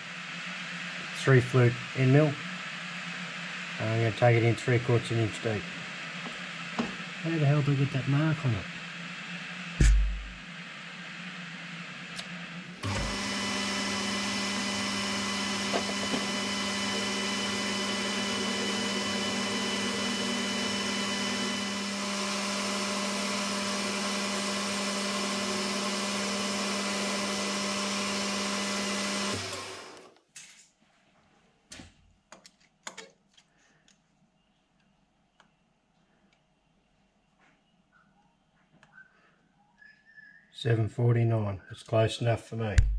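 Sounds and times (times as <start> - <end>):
lathe spinning down: 12.8 - 30.1
metal lathe motor humming: 12.8 - 30.1.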